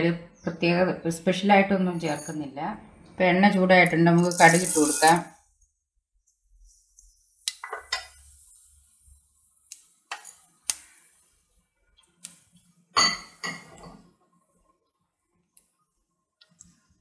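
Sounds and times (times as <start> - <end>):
mustard seeds sizzling in hot oil: 3.8 - 5.3, 7.0 - 11.6
seeds popping: 4.2 - 5.2.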